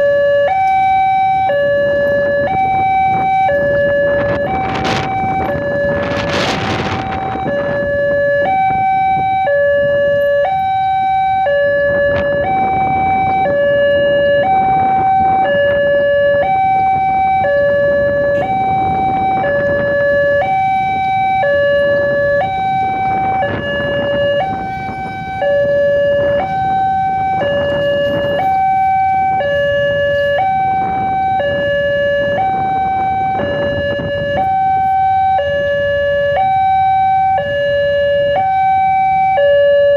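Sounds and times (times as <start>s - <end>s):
road traffic noise: 0.0s - 39.9s
two-tone level crossing alarm: 0.0s - 39.9s.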